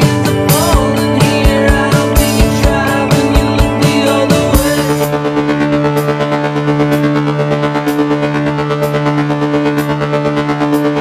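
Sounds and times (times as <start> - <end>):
sustained music chord: 0.0 - 11.0.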